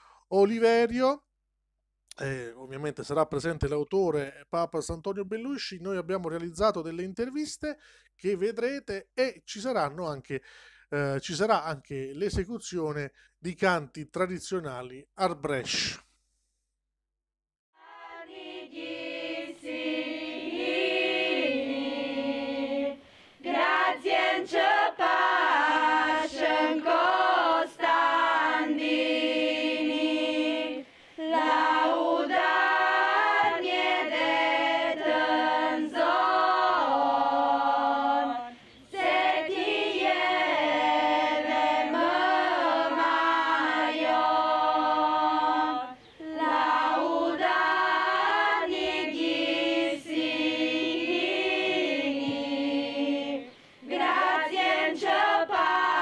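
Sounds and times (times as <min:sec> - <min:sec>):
women singing unaccompanied: 0:17.8 - 0:56.0.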